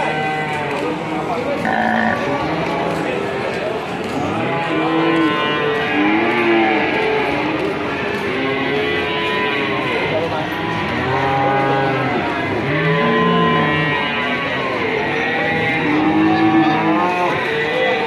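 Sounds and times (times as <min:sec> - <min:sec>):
cattle mooing: 0:01.6 - 0:02.3.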